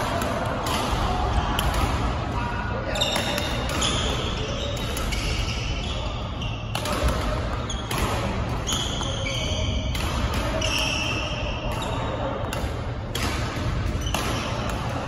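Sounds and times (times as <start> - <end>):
racket hitting shuttlecock: 0.0 - 2.2, 3.0 - 5.4, 6.7 - 15.0
shoes squeaking on floor: 8.6 - 9.7.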